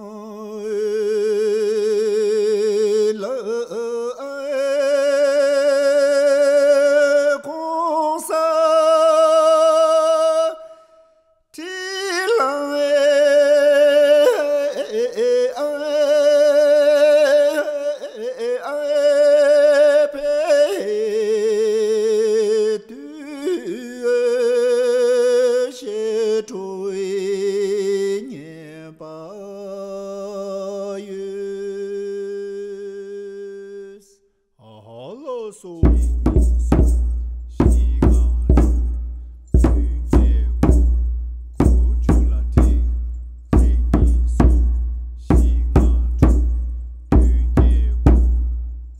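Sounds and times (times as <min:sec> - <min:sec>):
unaccompanied singing: 0:11.6 - 0:21.8, 0:37.6 - 0:38.8, 0:43.6 - 0:44.5, 0:45.3 - 0:46.4, 0:47.2 - 0:48.2.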